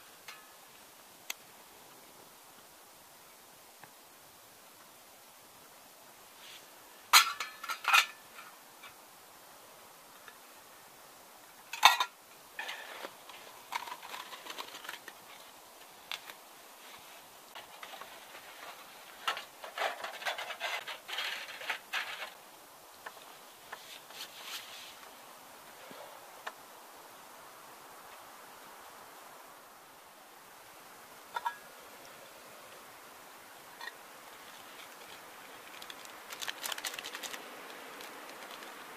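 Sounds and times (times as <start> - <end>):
metal can parts clinking: 7.1 - 8.2, 11.8 - 12.8
light clicks and rustles: 33.8 - 38.9.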